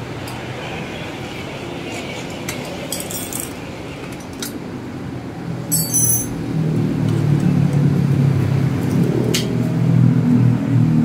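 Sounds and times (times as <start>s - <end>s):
wrench clinking on bicycle parts: 2.9s - 3.5s, 5.7s - 6.4s.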